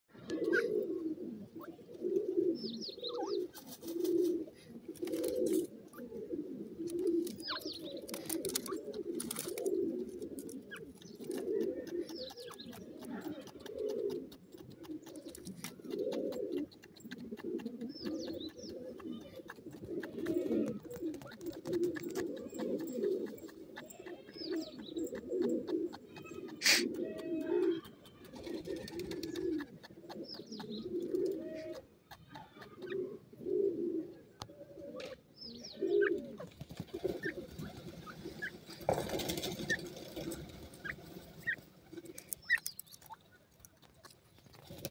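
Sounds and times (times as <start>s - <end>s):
bird cooing: 0.1s - 43.1s
high bird chirps: 7.3s - 8.8s, 20.2s - 29.4s.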